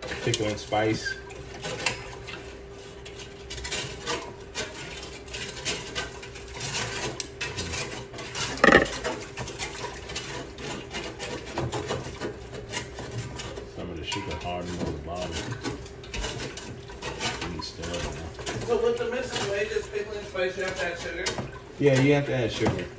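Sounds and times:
utensil clinking and scraping in pot: 0.0s - 22.9s
utensil knocking on pot: 8.6s - 9.0s.

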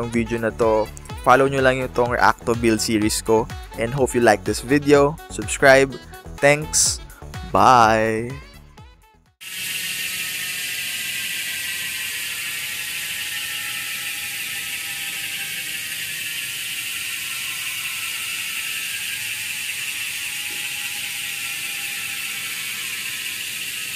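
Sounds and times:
bicycle freewheel ratcheting buzz: 0.0s - 7.4s, 9.4s - 23.9s.

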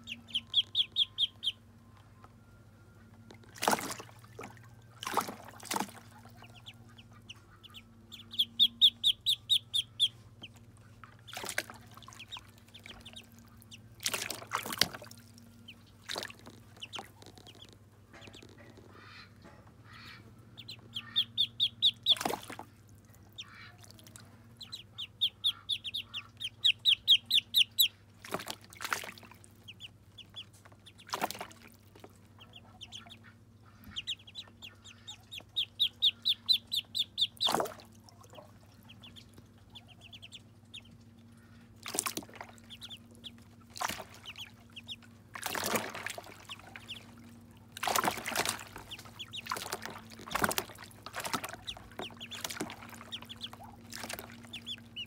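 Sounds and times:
ducklings peeping: 0.0s - 55.0s
water splashing: 3.4s - 7.1s, 11.0s - 17.6s, 20.6s - 40.9s, 41.6s - 55.0s.

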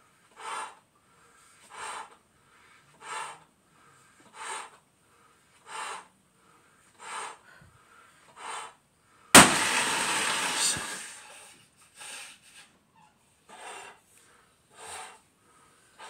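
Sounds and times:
balloon bursting with bang: 9.4s - 11.2s
breaths blowing up balloon: 9.4s - 11.4s.

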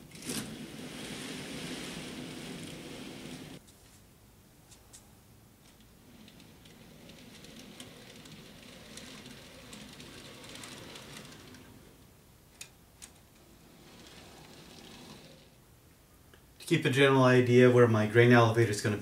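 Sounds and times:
model train cars rustling and ticking: 0.0s - 4.0s, 4.7s - 15.6s.

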